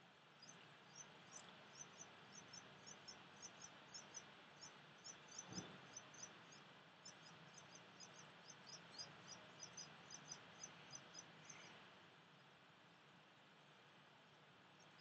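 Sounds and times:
rapid high-pitched chirping: 0:00.4 - 0:11.8.

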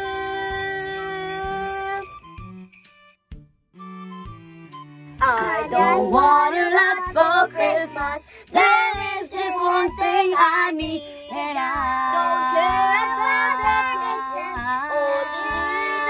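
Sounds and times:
girl singing over backing music: 0:05.2 - 0:16.0.

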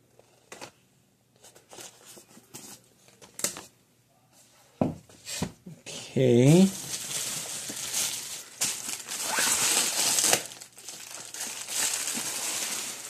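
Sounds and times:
plastic wrapper crinkling: 0:06.5 - 0:13.0.

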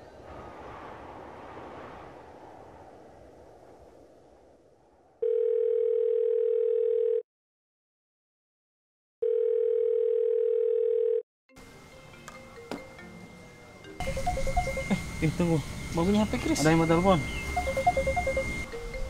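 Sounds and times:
faint outdoor ambience: 0:00.0 - 0:05.2, 0:11.6 - 0:19.0
telephone calling tone beeps: 0:05.2 - 0:07.2, 0:09.2 - 0:11.2, 0:14.0 - 0:15.2, 0:16.3 - 0:19.0.

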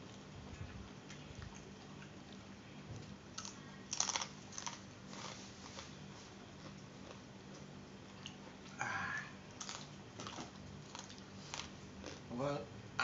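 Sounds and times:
man chewing crunchy food: 0:00.0 - 0:08.9, 0:09.5 - 0:12.3.

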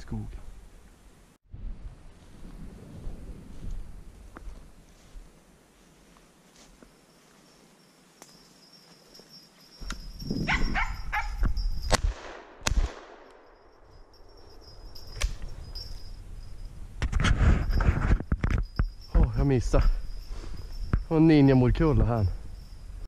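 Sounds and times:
rustling through brush: 0:02.0 - 0:11.2
gunshot: 0:11.9 - 0:13.3.

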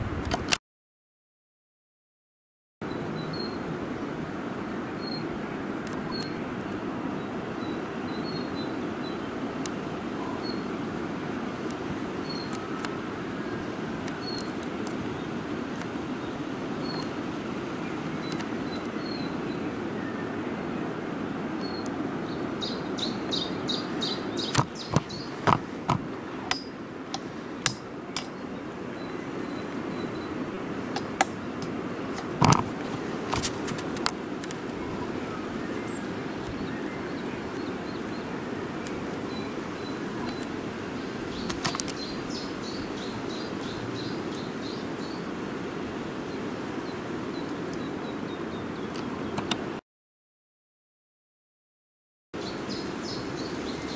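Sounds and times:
low outdoor background hum: 0:02.8 - 0:49.8
songbird chirping: 0:07.2 - 0:10.8, 0:11.4 - 0:20.8, 0:21.6 - 0:33.3, 0:34.6 - 0:45.3, 0:52.4 - 0:53.9.

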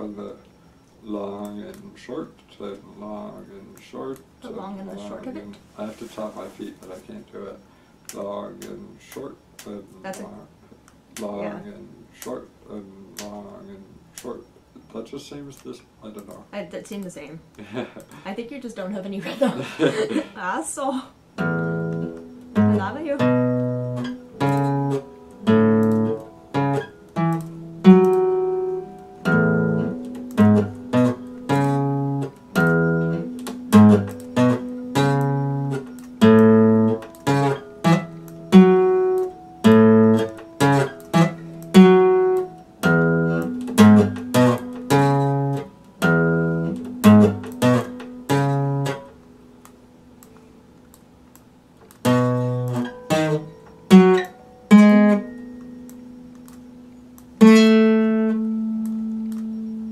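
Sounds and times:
acoustic guitar strummed in chords: 0:21.4 - 0:50.2, 0:52.0 - 0:59.9.

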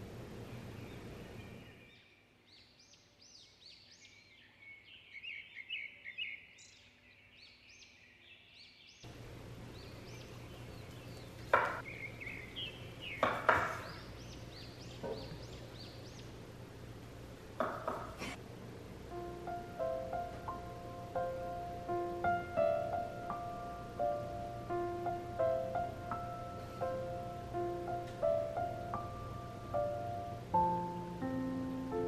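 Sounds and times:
small birds chirping: 0:00.0 - 0:18.4.

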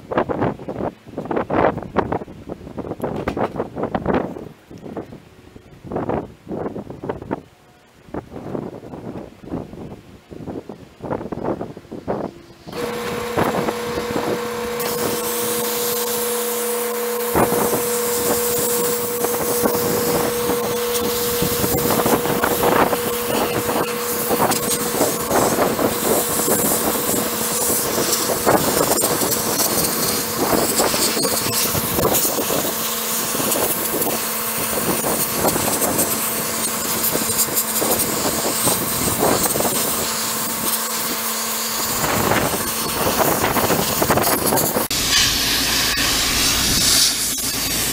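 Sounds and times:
steady hum: 0:00.0 - 0:47.9
sandblaster hissing and crackling: 0:11.1 - 0:47.9.

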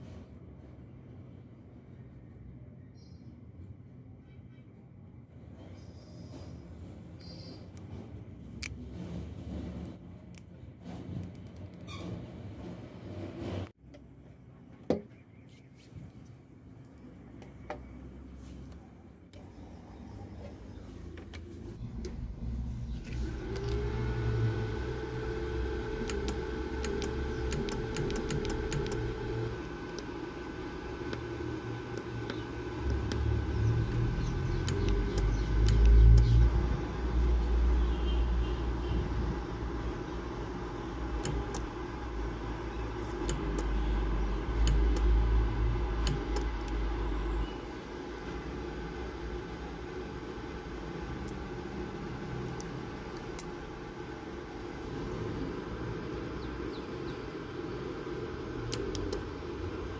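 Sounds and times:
low electrical hum: 0:00.0 - 0:59.9
high whine: 0:21.7 - 0:59.9
small sharp clicks: 0:26.0 - 0:29.1, 0:32.0 - 0:36.5, 0:44.6 - 0:45.2.

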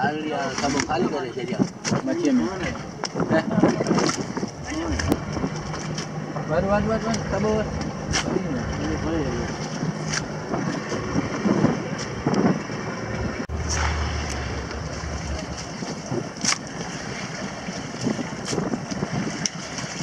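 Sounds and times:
wind on microphone: 0:00.0 - 0:20.0
low hum: 0:04.3 - 0:17.4.

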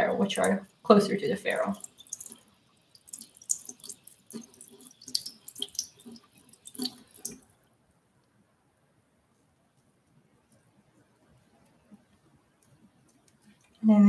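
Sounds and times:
tap water splashing into sink: 0:03.0 - 0:07.4.

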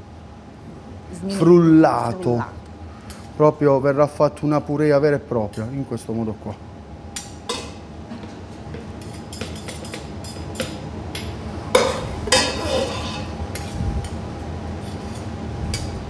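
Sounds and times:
metal spoon scraping saucepan: 0:11.8 - 0:13.8.

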